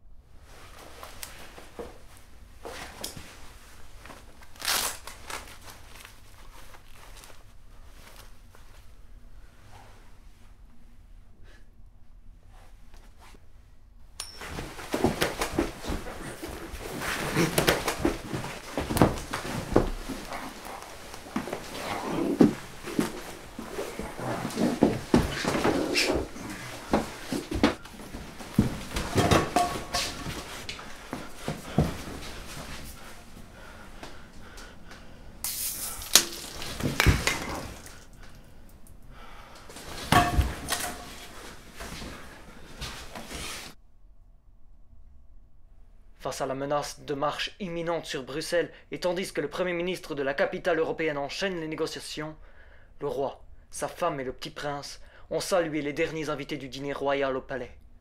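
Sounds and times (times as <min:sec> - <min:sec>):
clothing rustling: 0:00.4 - 0:10.8, 0:14.3 - 0:38.5, 0:39.7 - 0:43.8
sharp ringing strikes: 0:14.2 - 0:14.6
thumps and knocks: 0:14.3 - 0:30.8, 0:39.9 - 0:41.4
people grunting: 0:15.0 - 0:27.7
dishes and pots clinking: 0:28.9 - 0:30.6, 0:39.9 - 0:41.5.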